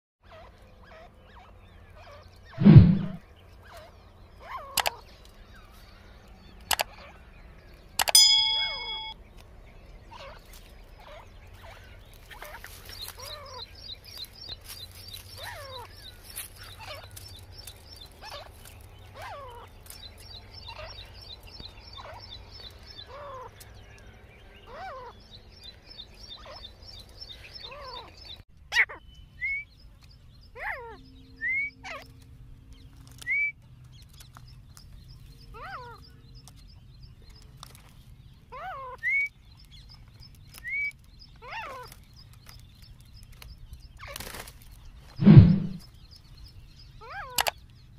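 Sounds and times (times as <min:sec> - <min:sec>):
bird calls sliding down in pitch: 0:02.6 - 0:03.2, 0:45.2 - 0:45.8.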